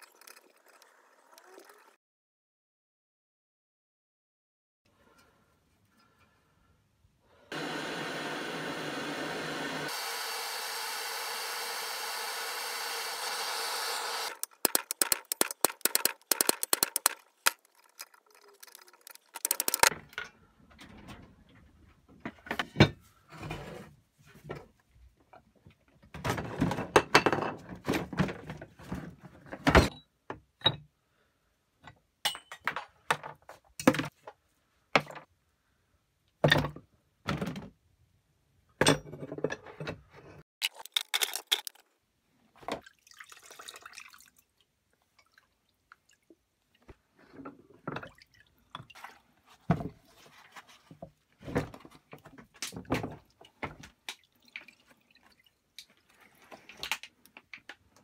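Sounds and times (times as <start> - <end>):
metal parts clunking in plastic tub: 14.4 - 20.3
liquid dripping and splashing: 42.8 - 46.8, 54.0 - 56.8.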